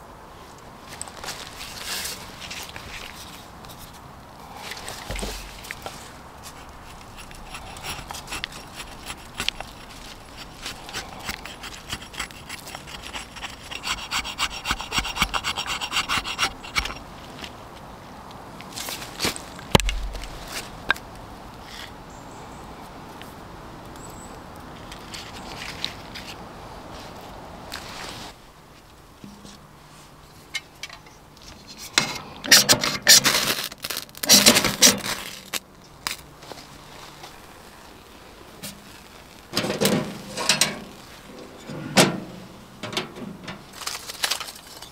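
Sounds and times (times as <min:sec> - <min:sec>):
blade scraping wood: 0:04.6 - 0:17.1, 0:34.2 - 0:35.6, 0:38.6 - 0:44.9.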